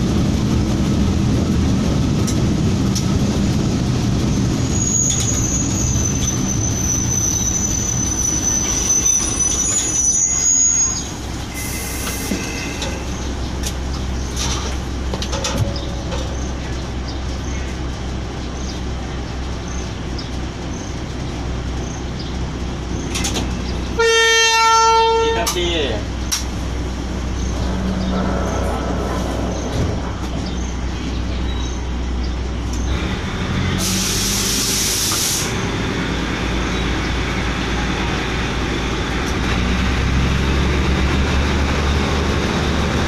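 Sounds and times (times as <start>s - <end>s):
diesel locomotive engine running: 0.0s - 43.0s
high squeal of wheels: 4.4s - 13.2s
hiss of air: 11.5s - 12.8s, 33.8s - 35.6s
locomotive horn: 23.9s - 25.6s, 27.6s - 29.5s.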